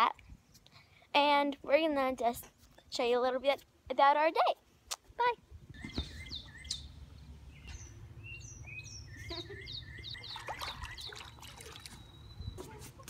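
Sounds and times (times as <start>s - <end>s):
songbirds chirping: 5.4s - 12.8s
low steady rumble: 6.6s - 10.4s.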